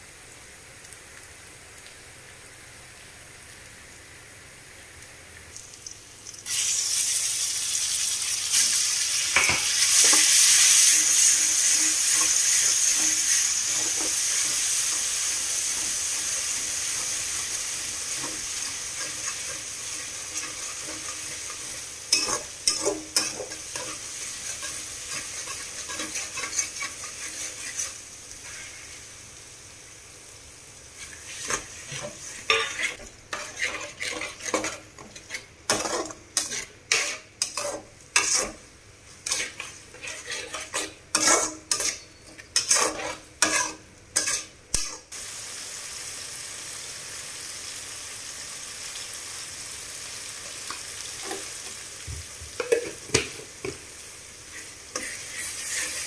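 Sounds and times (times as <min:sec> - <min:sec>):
onions sizzling in hot oil: 0:00.0 - 0:56.0
spatula scraping a pan: 0:09.4 - 0:17.5, 0:18.1 - 0:29.0, 0:31.0 - 0:38.6, 0:39.2 - 0:44.5, 0:54.5 - 0:56.0.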